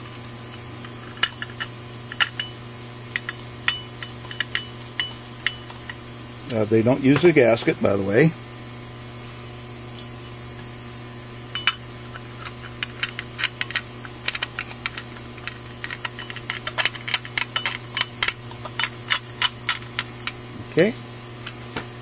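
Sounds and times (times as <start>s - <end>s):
steady electrical hum: 0.0s - 22.0s
screwdriver clicking on metal: 12.4s - 20.4s.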